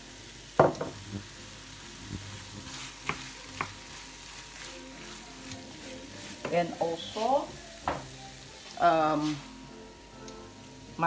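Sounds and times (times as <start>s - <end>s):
low sizzle of frying: 0.0s - 11.0s
wooden spoon scraping a pan: 2.1s - 9.5s.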